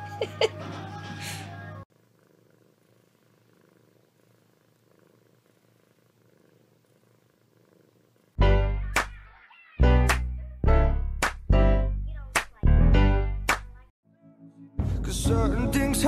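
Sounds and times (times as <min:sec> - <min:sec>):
cat purring: 0:01.8 - 0:08.4.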